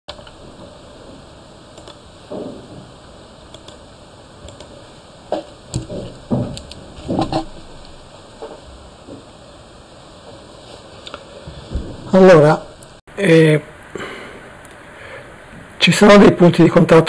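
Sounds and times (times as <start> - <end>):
computer mouse clicks: 1.8 - 2.0, 3.5 - 3.8, 4.5 - 4.8
handling thumps and rustling: 5.3 - 7.8, 11.5 - 12.1.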